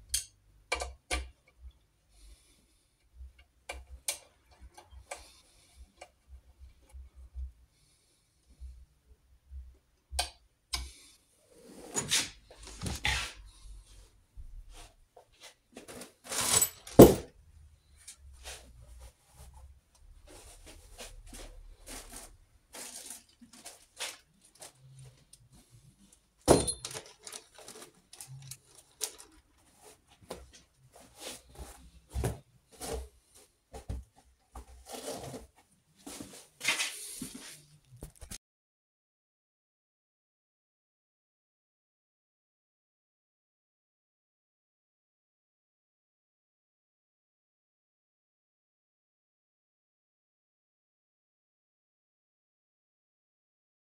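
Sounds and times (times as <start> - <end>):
metal parts clicking and clattering: 15.9 - 17.3, 26.5 - 29.4.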